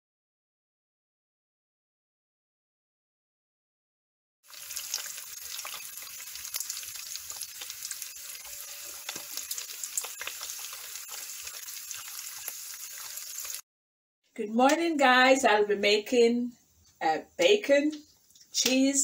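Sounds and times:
bacon sizzling in a frying pan: 4.4 - 13.6.

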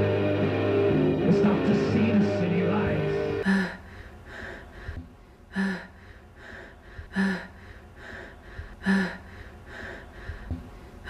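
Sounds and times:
person panting hard: 3.4 - 11.0.

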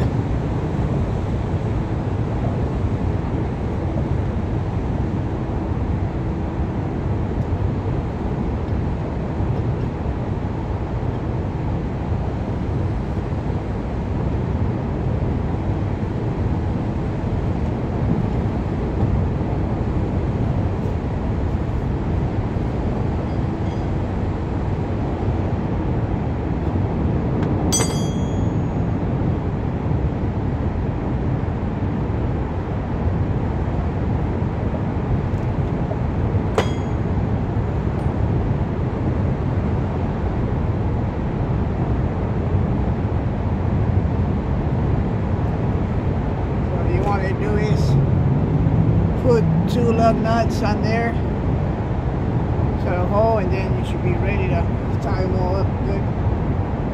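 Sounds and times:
road traffic rumble: 0.0 - 56.9
metal clink of hand tool: 27.8 - 28.6, 36.6 - 37.0.

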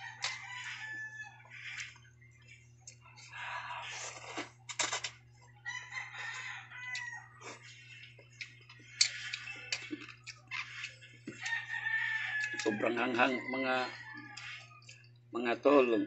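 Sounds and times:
rooster crowing: 0.0 - 1.8, 5.6 - 7.6, 11.4 - 14.8
slurping noodles: 3.8 - 4.6.

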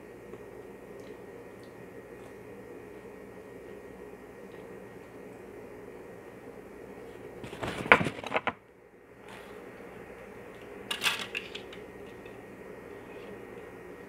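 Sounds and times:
tableware crackling and clicking: 10.9 - 12.4.

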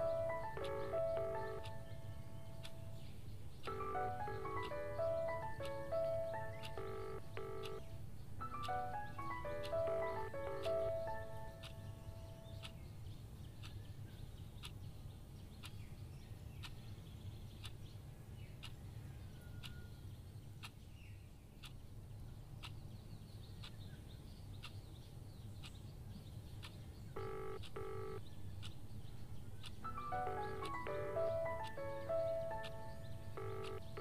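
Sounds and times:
soft ticking: 0.0 - 12.9, 26.6 - 34.0
low steady hum: 0.0 - 13.1, 27.0 - 34.0.

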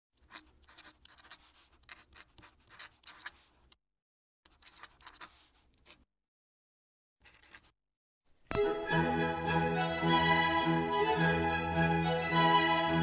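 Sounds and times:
pen nib scratching on paper: 0.2 - 3.8, 4.5 - 6.1.

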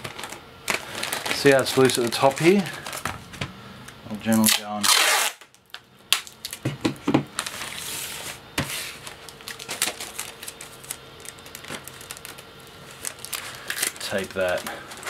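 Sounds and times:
plastic satchel crinkling: 0.0 - 3.1, 9.0 - 15.0.

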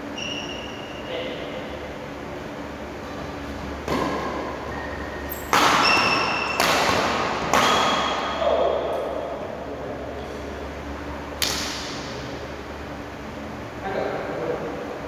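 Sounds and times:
steady low hum: 0.0 - 15.0
rackets hitting shuttlecock: 3.8 - 8.4, 11.4 - 12.2.

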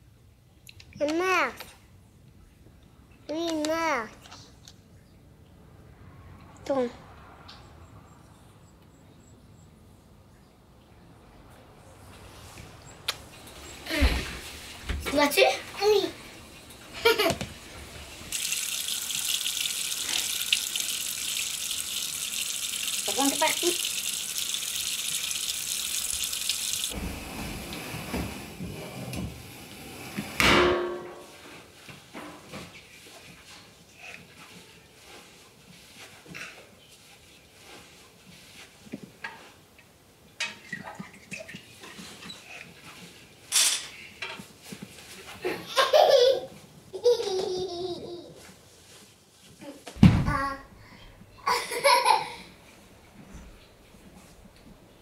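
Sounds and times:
faucet water pouring into sink: 18.3 - 27.0.

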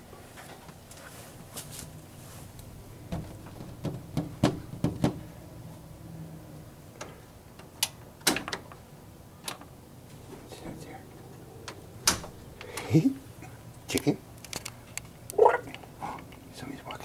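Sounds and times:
glass door rattling in frame: 3.1 - 5.4.

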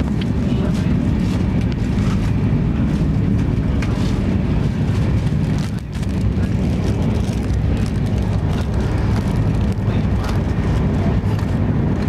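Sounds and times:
train coach rumble: 0.0 - 12.0.

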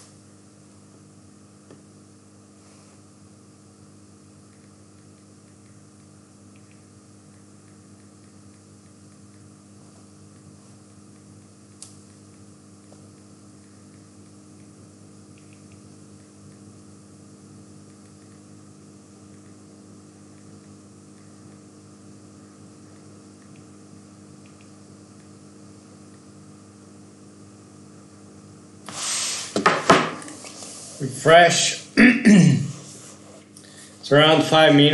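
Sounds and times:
computer fan humming: 0.0 - 34.9.

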